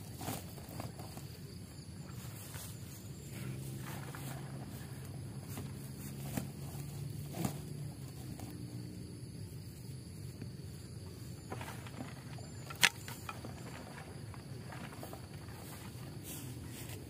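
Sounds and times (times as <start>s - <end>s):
low steady hum: 0.0s - 17.0s
footsteps on grass: 1.2s - 8.6s, 10.8s - 17.0s
bamboo stakes dropped on ground: 5.5s - 8.6s, 11.4s - 17.0s.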